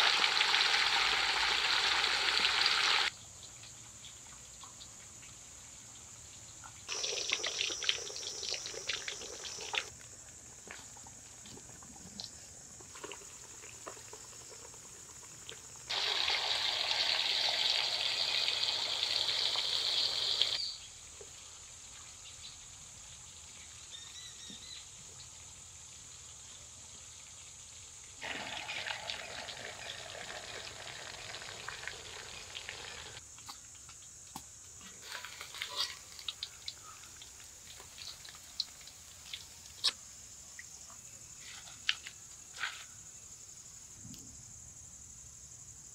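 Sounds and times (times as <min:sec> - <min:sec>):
hot oil crackling: 0:00.0 - 0:03.1, 0:12.8 - 0:20.6, 0:28.2 - 0:33.2, 0:35.0 - 0:40.0
low steady hiss: 0:00.0 - 0:45.9.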